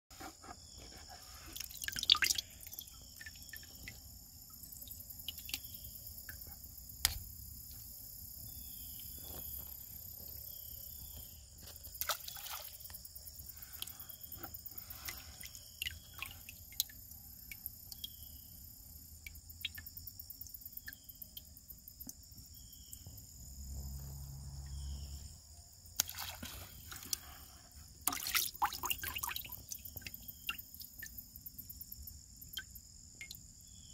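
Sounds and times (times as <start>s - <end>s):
water sloshing in a plastic bucket: 0.2s - 4.2s, 11.1s - 13.1s, 13.8s - 17.0s, 25.9s - 31.1s.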